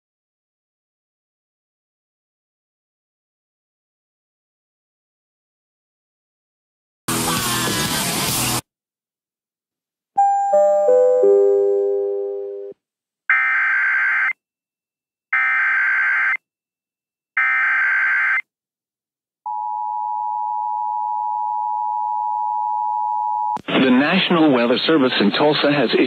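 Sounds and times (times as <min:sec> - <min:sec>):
falling chime: 0:10.2 - 0:12.7.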